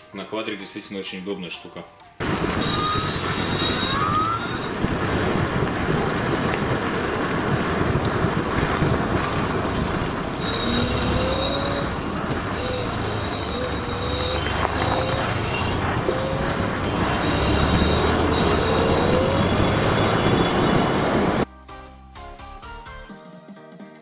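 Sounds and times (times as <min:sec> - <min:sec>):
wind and road noise: 0:02.2 - 0:21.5
thin high whine: 0:02.3 - 0:04.8, 0:09.2 - 0:21.5.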